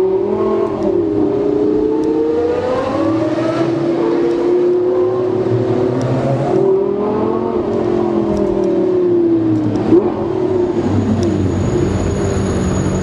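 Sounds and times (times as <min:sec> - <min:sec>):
car engine decelerating: 0:00.0 - 0:13.0.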